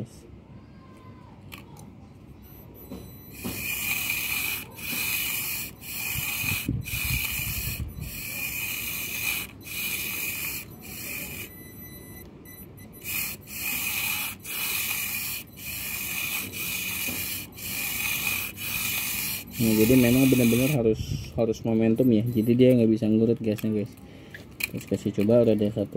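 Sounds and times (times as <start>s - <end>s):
small electric motor whirring: 2.5s - 21.0s.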